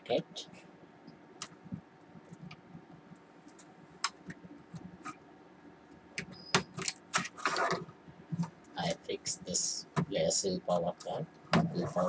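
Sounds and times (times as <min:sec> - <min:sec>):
clicks of handling wires and casing: 0:06.2 - 0:08.6.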